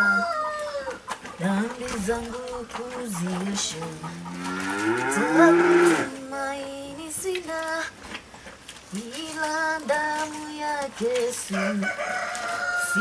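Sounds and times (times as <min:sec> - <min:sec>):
person singing slow tune: 0:01.4 - 0:04.3, 0:05.0 - 0:08.0, 0:08.9 - 0:13.0.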